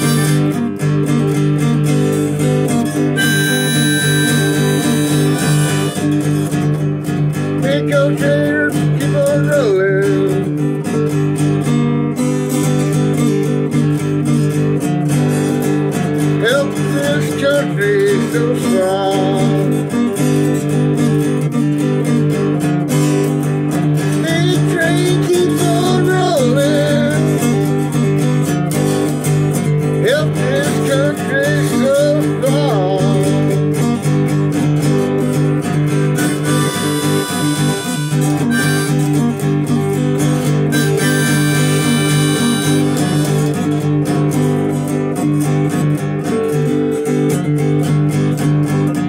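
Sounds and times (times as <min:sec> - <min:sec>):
harmonica melody: 0:00.0 - 0:01.3, 0:02.3 - 0:06.8, 0:23.8 - 0:28.8, 0:30.2 - 0:33.8, 0:35.3 - 0:44.0
acoustic guitar strumming: 0:00.0 - 0:49.0.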